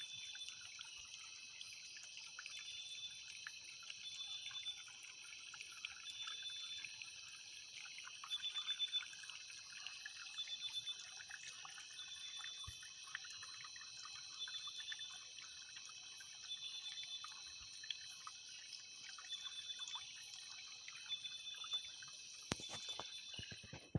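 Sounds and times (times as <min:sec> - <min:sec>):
insects and frogs chorus: 0:00.0 - 0:23.9
small crackles: 0:22.4 - 0:23.9.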